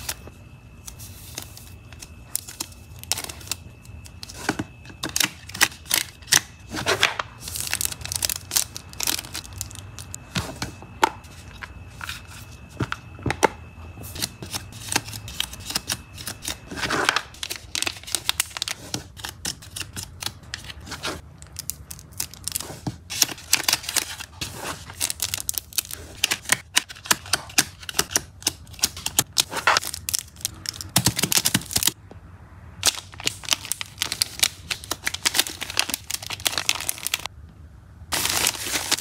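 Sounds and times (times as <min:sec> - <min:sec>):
plastic sleeves crinkling: 0:05.0 - 0:10.2, 0:14.1 - 0:28.0, 0:28.6 - 0:32.0, 0:32.8 - 0:37.3, 0:38.1 - 0:39.0.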